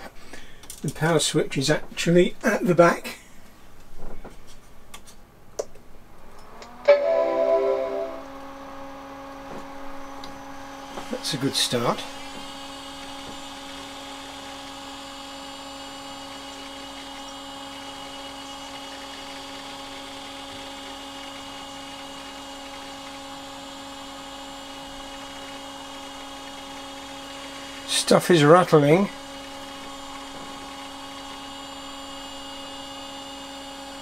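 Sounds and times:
computer fan and disk hum: 0.5 - 34.0
high electronic whine: 6.6 - 9.0.

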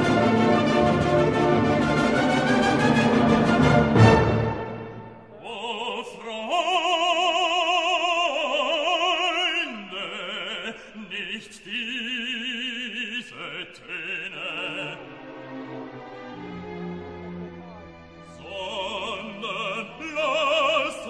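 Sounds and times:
orchestral accompaniment: 0.0 - 5.4, 14.3 - 21.0
opera singer with vibrato: 5.3 - 15.2, 18.4 - 21.0.

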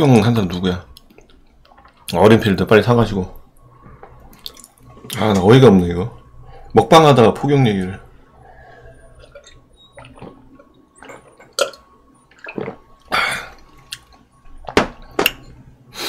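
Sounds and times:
man gulping water: 9.2 - 15.5.

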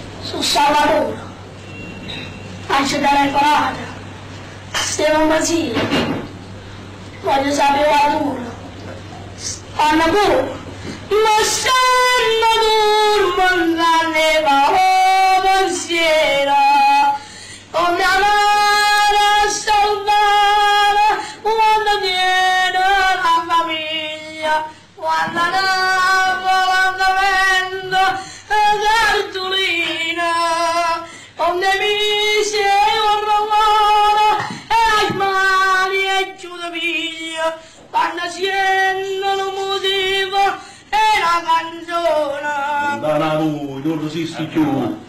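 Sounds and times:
child singing: 17.8 - 43.0.

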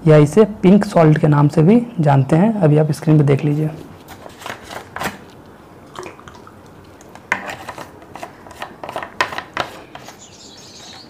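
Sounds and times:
faint high chirping: 10.0 - 11.0.

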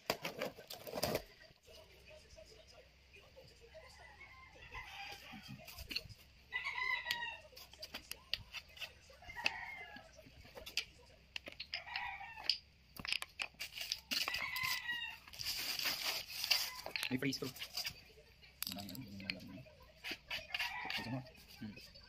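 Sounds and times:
roosters crowing: 3.8 - 5.8, 6.5 - 7.7, 9.1 - 10.2, 11.7 - 12.6, 14.1 - 15.4, 20.3 - 21.4.

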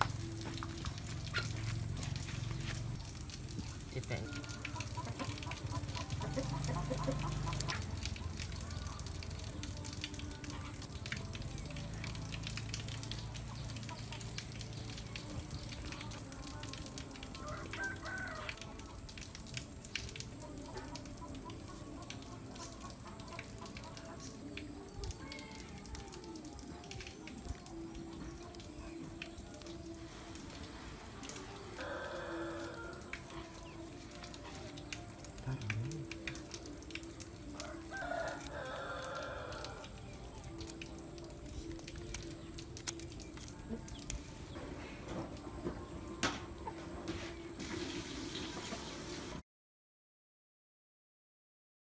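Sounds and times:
rooster crowing: 17.4 - 18.7, 31.8 - 33.1, 37.5 - 39.9.

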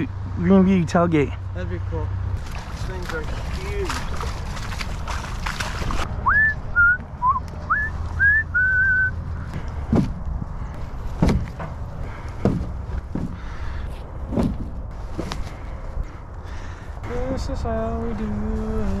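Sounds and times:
wind rumble on microphone: 2.2 - 19.0
person whistling short notes: 6.2 - 9.2
dull thumps: 9.6 - 10.5, 11.1 - 13.7, 14.3 - 15.5.

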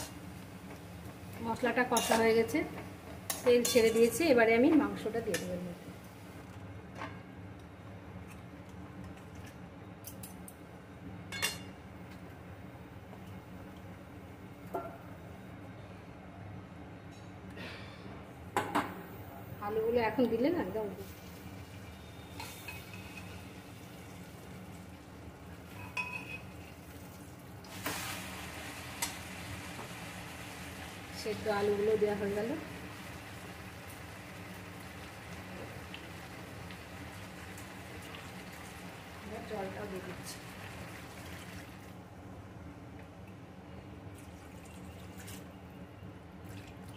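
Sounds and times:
scraping and sizzling: 1.8 - 2.6, 22.2 - 23.6, 27.7 - 32.5
metal bowl clinking on pan rim: 25.8 - 26.5.

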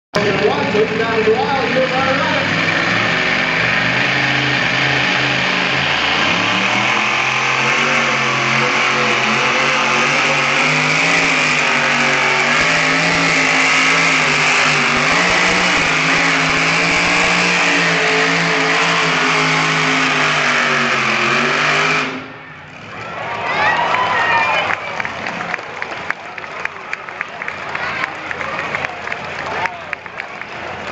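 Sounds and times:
truck engine running under load: 0.2 - 23.2.

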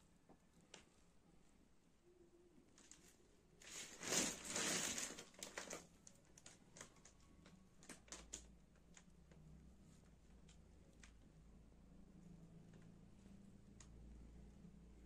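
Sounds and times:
handling rustle: 2.8 - 5.8.

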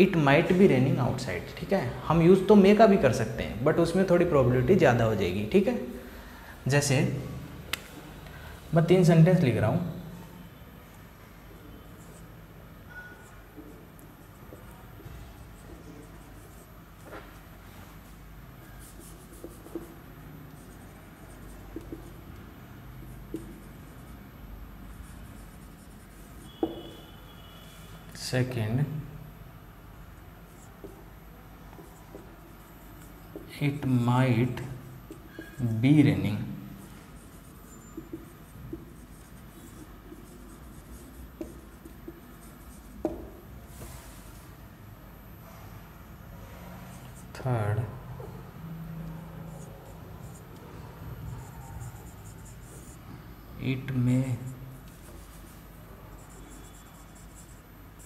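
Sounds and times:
marker scratching on whiteboard: 10.0 - 28.1, 30.0 - 44.5, 46.2 - 53.2, 53.8 - 58.0
pen tapping on whiteboard: 19.0 - 20.0, 21.7 - 22.2, 23.0 - 23.7, 26.5 - 27.1, 30.8 - 31.1, 31.7 - 32.3, 34.6 - 35.6, 37.8 - 43.5
marker tip tapping: 26.5 - 26.9, 40.9 - 42.2, 43.0 - 43.4
steady low hum: 29.0 - 58.0.

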